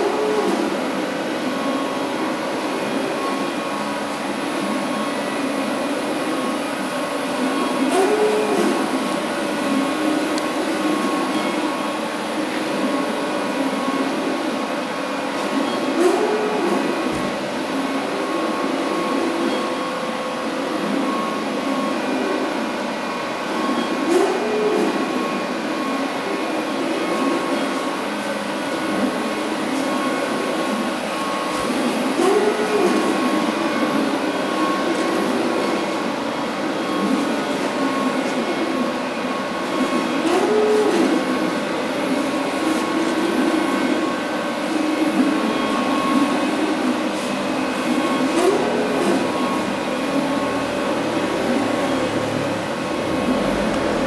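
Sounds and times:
light fans and motors whirring: 0.0s - 54.0s
motor hum rising and falling: 48.0s - 54.0s.

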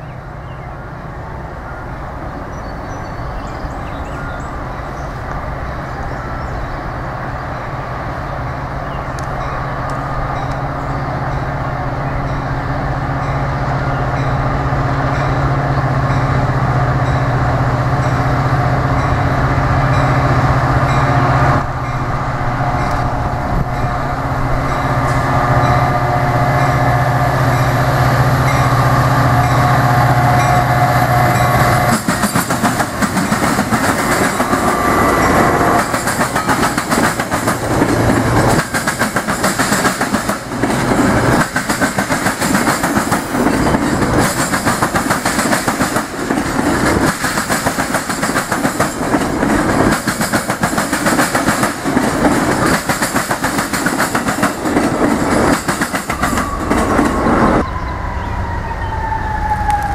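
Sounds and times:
train horn: 22.3s - 32.1s
train wheels clattering: 31.4s - 57.3s.

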